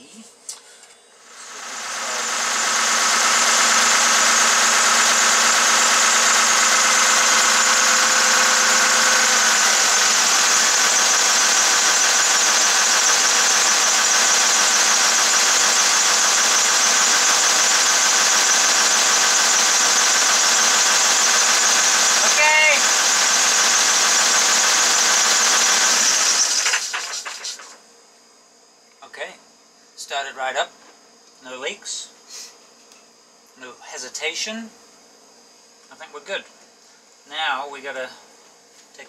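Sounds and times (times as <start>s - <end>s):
marine diesel engine running: 1.8s - 27.8s.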